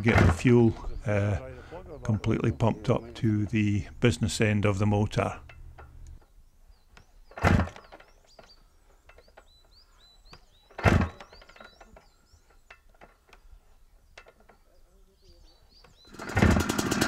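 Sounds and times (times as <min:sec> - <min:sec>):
birds chirping: 0:00.0 - 0:17.0
motorcycle engine kickstart: 0:07.3 - 0:08.6, 0:10.5 - 0:12.2, 0:15.8 - 0:17.0.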